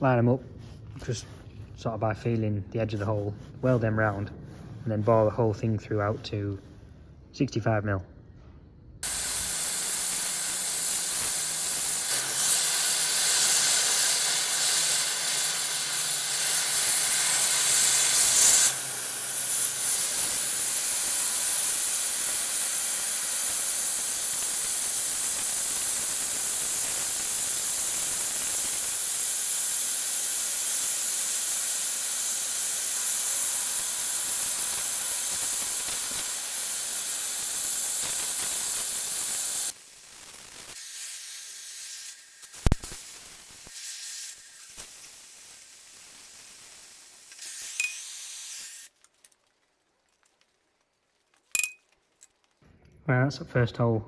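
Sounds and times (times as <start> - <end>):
cutting torch hissing: 9.0 - 49.0.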